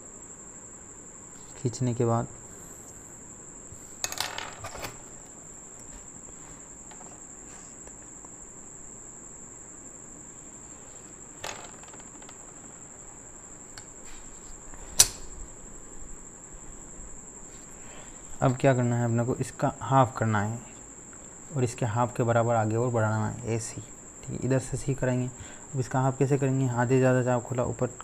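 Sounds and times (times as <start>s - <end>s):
ruler set down on paper: 4.0s - 5.1s, 11.4s - 12.4s.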